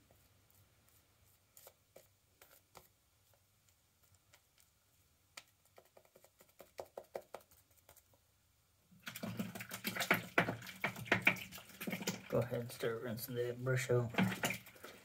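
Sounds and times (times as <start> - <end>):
shaving brush lathering soap: 9.1 - 12.8.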